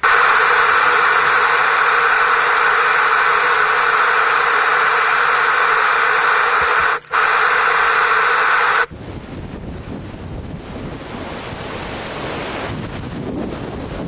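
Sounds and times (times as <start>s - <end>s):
surf: 0.0s - 14.0s
wind roaring on microphone: 0.0s - 14.0s
storm wind rushing: 8.9s - 14.0s.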